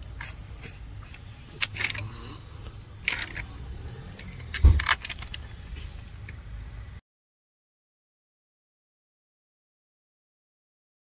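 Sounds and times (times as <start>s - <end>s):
steady low hum: 0.0s - 7.0s
metal tools clinking: 1.1s - 2.1s, 3.0s - 5.6s
heavy thump: 4.5s - 4.9s.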